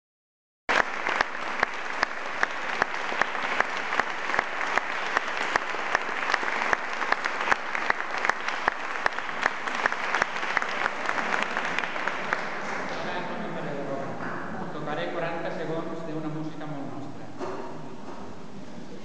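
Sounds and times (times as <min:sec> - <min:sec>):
close person clapping: 0:00.7 - 0:13.0
audience applauding: 0:00.7 - 0:13.5.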